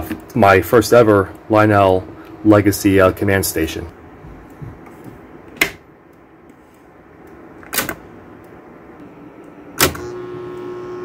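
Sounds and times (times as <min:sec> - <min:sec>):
electric hum of switch coil: 0:00.0 - 0:11.0.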